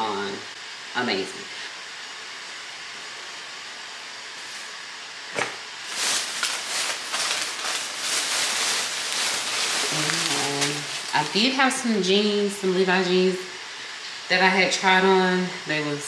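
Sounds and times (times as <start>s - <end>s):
faint steady hiss: 0.0s - 16.0s
plastic bag rustling: 4.4s - 4.8s, 5.4s - 11.8s.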